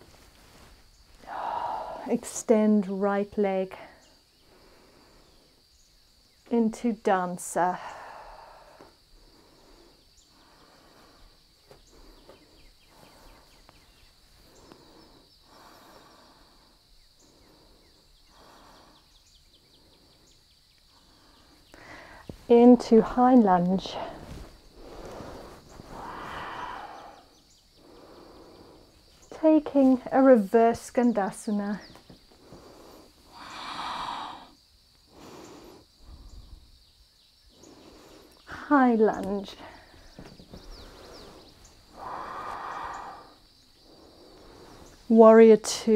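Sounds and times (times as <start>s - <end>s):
faint high hiss: 0.0s - 45.9s
person breathing slowly: 0.4s - 2.1s, 4.0s - 5.8s, 7.8s - 22.5s, 23.9s - 29.3s, 32.1s - 36.9s, 37.5s - 38.6s, 39.6s - 45.1s.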